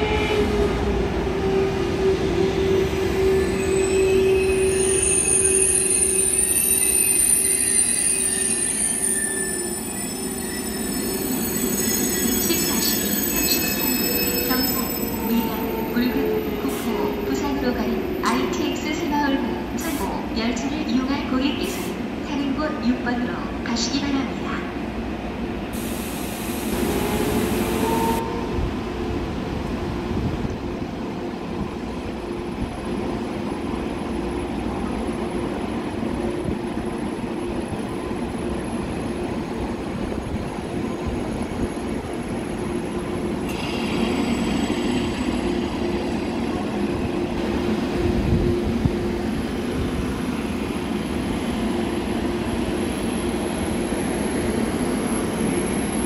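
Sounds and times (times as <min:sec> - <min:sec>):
train steady hum with whine: 0:00.0 - 0:56.0
hiss: 0:25.8 - 0:27.8.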